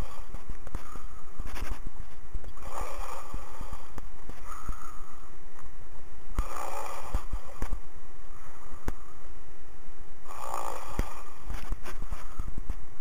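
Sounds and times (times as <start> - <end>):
person snoring over phone: 0.0 - 1.2, 2.5 - 5.2, 6.3 - 7.8, 10.2 - 12.5.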